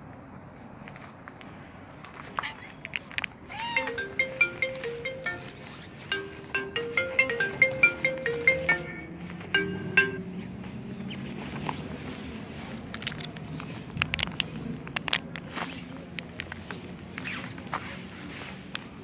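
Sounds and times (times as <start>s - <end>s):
marimba-like melody: 3.6s - 10.5s.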